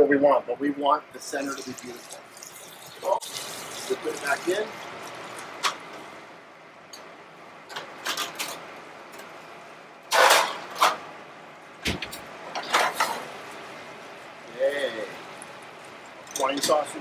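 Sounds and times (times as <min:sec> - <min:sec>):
steady hiss: 0:01.1 - 0:07.6, 0:11.2 - 0:17.0
pan clattering onto oven rack: 0:10.1 - 0:11.0, 0:11.9 - 0:13.3
oven door shutting thud: 0:11.8 - 0:12.2.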